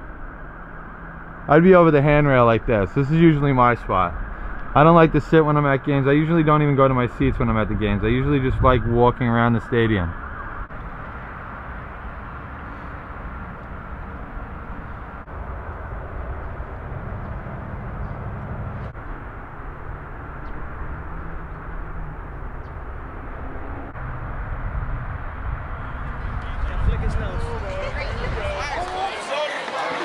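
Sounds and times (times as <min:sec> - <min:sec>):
outdoor background rumble: 0:00.0 - 0:28.8
low engine hum: 0:10.1 - 0:28.8.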